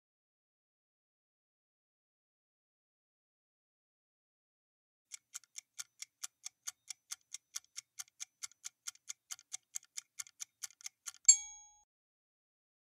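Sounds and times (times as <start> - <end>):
fast clock ticking: 5.1 - 11.3.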